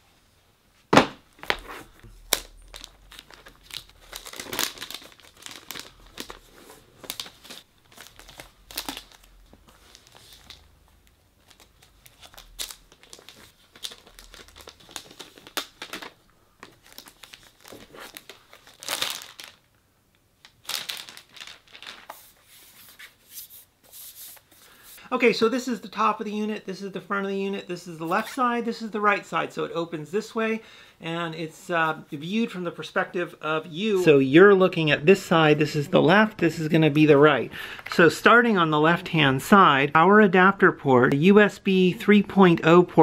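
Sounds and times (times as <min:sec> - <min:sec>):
packaging wrap crinkling and tearing: 0:01.4 - 0:19.7, 0:20.4 - 0:22.4.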